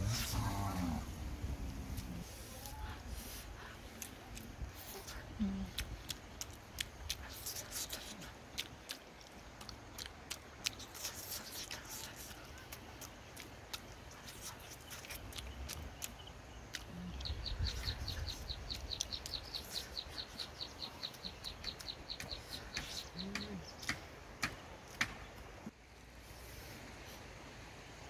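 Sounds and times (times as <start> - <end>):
person chewing crunchy food: 3.6 - 20.2.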